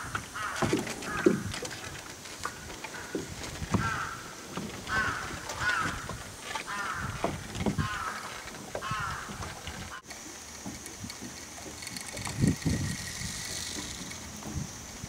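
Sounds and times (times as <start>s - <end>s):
crow cawing: 0.3s - 1.5s, 2.5s - 10.1s.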